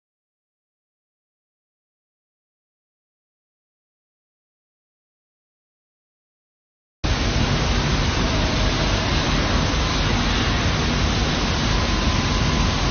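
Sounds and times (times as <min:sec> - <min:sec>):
faint steady hums: 0:07.1 - 0:12.9
water rushing through filter: 0:07.1 - 0:12.9.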